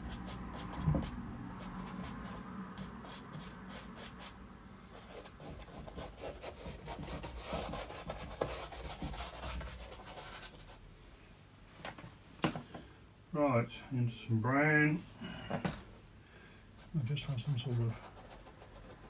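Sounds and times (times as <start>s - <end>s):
paintbrush scrubbing canvas: 0.0s - 10.8s, 16.8s - 19.0s.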